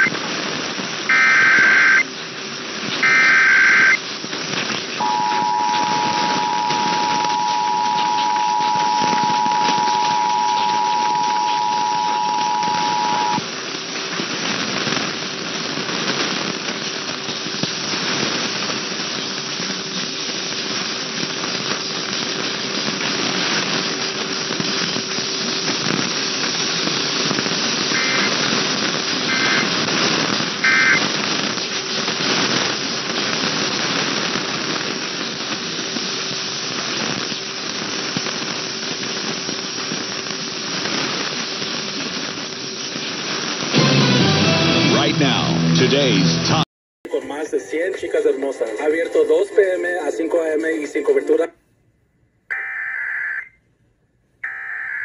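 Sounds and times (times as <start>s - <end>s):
short data bursts: 0.0s - 15.1s, 20.9s - 34.7s, 52.5s - 53.6s, 54.4s - 55.0s
radio static and hiss: 0.0s - 51.6s
two-tone attention signal: 1.1s - 2.0s, 3.0s - 4.0s, 5.0s - 13.4s, 29.3s - 29.6s, 30.6s - 31.0s
faint steady whistle: 5.0s - 13.4s.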